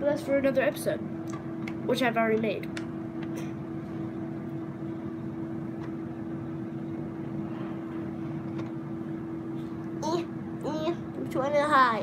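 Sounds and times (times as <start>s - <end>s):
ceiling fan electric hum: 0.0s - 12.0s.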